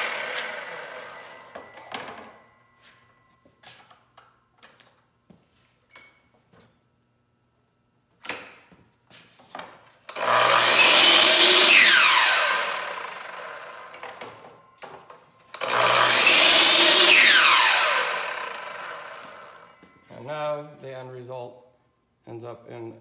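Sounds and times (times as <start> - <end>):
miter saw cutting: 0.0 - 1.8, 10.1 - 14.2, 15.5 - 19.8
saw blade whine spinning down: 0.0 - 2.5, 10.2 - 14.3, 15.5 - 19.8.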